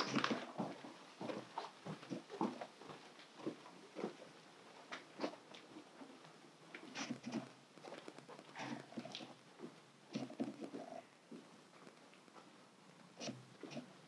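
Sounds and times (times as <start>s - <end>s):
soft footsteps on carpet: 0.3s - 6.8s.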